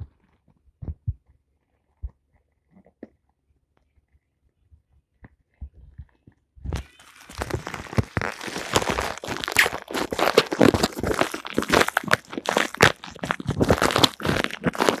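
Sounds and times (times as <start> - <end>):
plastic and cloth rubbing microphone: 5.3 - 15.0.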